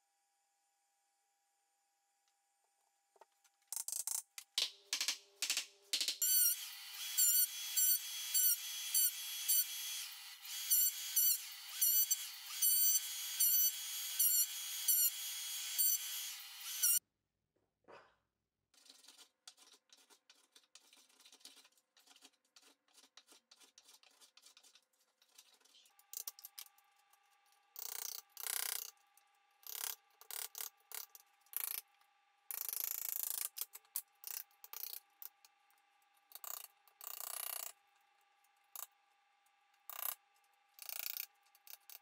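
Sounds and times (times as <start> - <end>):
hand tools scraping wood: 18.8 - 25.9.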